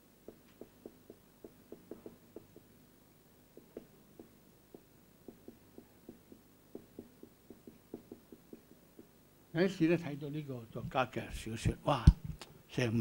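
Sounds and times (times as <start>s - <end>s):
marker pen writing on whiteboard: 0.2s - 2.7s, 3.6s - 9.1s.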